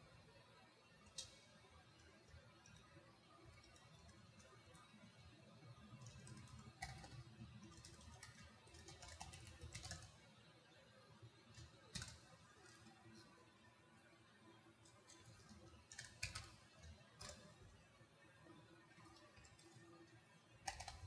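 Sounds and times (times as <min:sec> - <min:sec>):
typing on a computer keyboard: 0:03.5 - 0:05.0, 0:05.8 - 0:10.2, 0:11.5 - 0:12.9, 0:14.8 - 0:17.6, 0:18.9 - 0:21.0.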